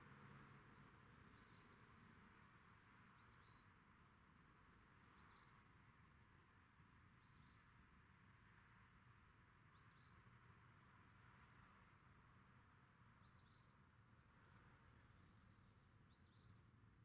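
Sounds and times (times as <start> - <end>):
faint high bird chirps: 16.1 - 16.7.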